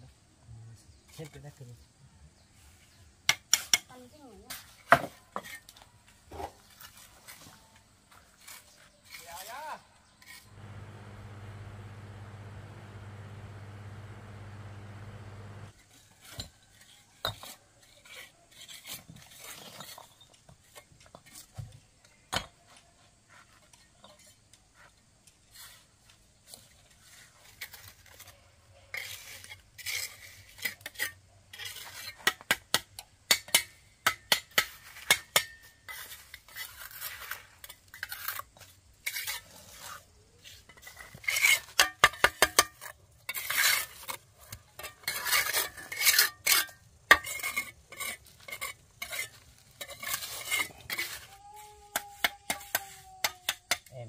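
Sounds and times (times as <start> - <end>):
trowel scraping mortar: 10.2 - 21.5, 26.6 - 32.5, 34.5 - 53.9.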